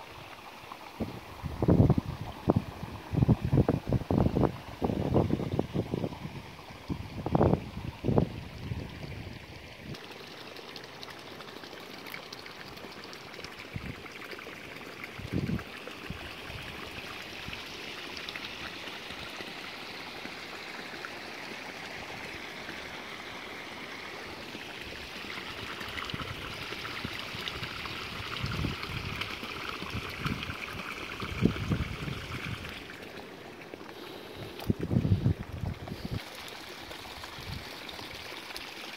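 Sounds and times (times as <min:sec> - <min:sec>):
wind buffeting microphone: 0:01.0 - 0:09.4, 0:31.3 - 0:32.7, 0:34.6 - 0:36.2.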